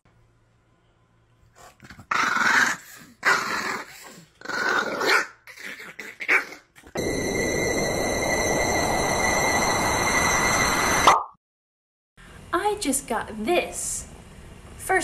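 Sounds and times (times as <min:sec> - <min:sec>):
small dog growling: 0:01.6 - 0:06.9
hissing noise with high tone: 0:07.0 - 0:11.1.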